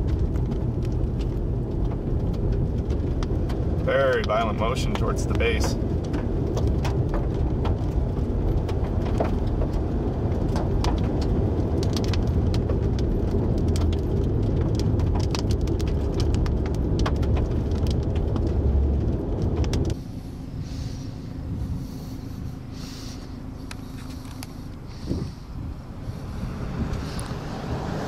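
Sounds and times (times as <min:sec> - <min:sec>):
crackles and clicks: 0:00.0 - 0:27.8
strong wind buffeting microphone: 0:00.0 - 0:28.0.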